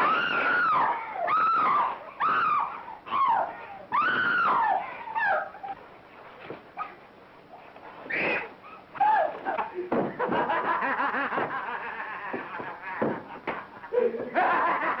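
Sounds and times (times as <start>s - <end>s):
shrill rising and falling cries: 0.0s - 5.8s.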